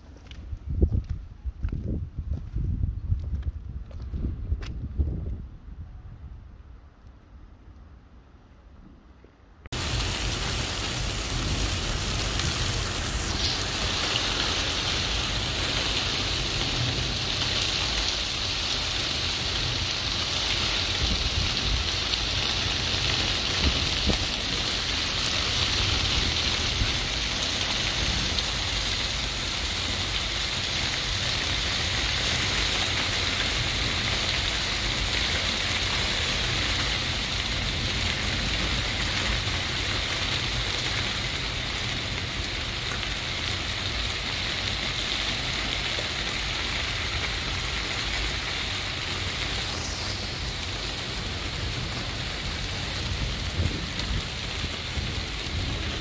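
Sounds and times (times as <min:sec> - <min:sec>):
heavy rain on a wet street: 0:09.7 - 0:56.0
low thunder rumble: 0:09.8 - 0:42.7, 0:48.9 - 0:56.0.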